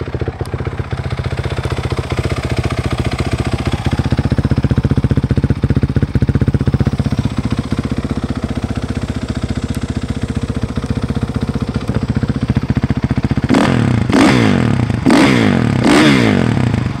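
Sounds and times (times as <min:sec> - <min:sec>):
motorcycle engine idling: 0:00.0 - 0:17.0
engine revving: 0:12.7 - 0:17.0.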